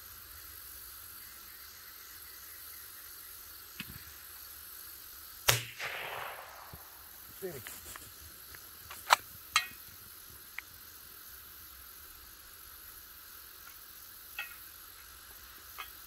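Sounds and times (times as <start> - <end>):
low background hiss: 0.0 - 16.0
faint ticks: 7.6 - 11.0, 13.6 - 16.0.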